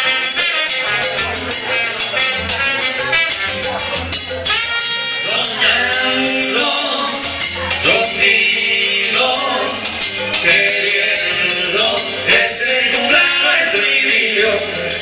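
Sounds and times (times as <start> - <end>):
salsa music over pa: 0.0 - 15.0
shaker rhythm: 0.0 - 15.0
men singing into microphones: 5.2 - 15.0.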